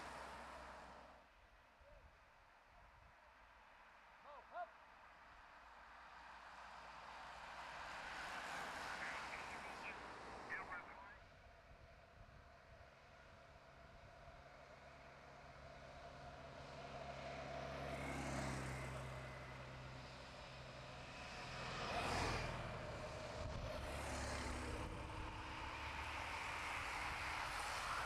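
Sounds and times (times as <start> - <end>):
motorcycle engine passing: 21.1 - 28.0.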